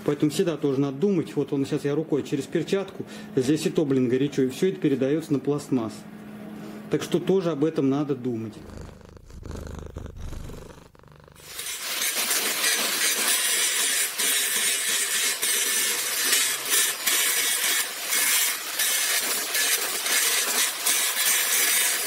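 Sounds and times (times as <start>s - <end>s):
angle grinder grinding steel: 8.6s - 22.0s.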